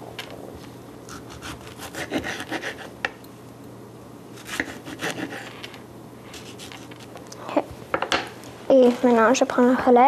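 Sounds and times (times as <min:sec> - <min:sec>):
knife slicing tomato on board: 0:01.1 - 0:03.2, 0:04.4 - 0:07.1.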